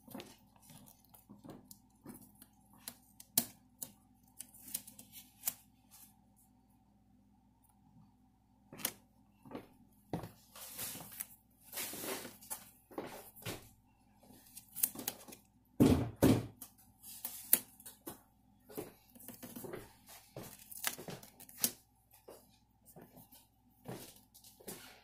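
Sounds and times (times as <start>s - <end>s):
contact paper crinkling: 0.0s - 6.3s, 10.4s - 15.6s, 18.9s - 23.5s.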